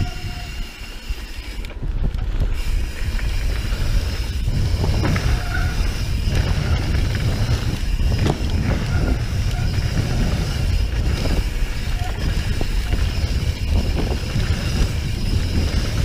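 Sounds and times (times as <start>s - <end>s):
disc brakes squealing: 0.0s - 1.5s, 2.6s - 16.0s
bike rattling over bumps: 0.0s - 16.0s
bike tyres rumbling on dirt: 0.0s - 16.0s
wind on microphone: 0.0s - 16.0s.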